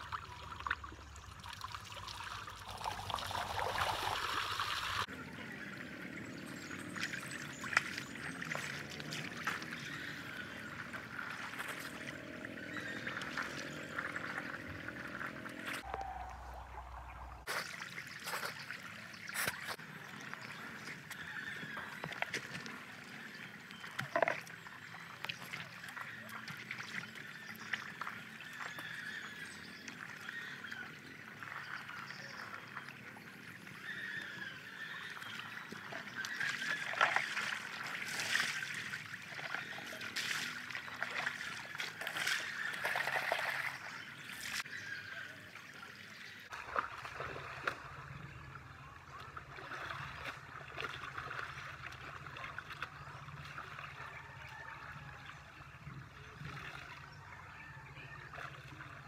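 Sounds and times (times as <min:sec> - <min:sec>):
stream trickling over rocks: 0:00.0 - 0:57.6
water splashed by hand: 0:35.3 - 0:44.6.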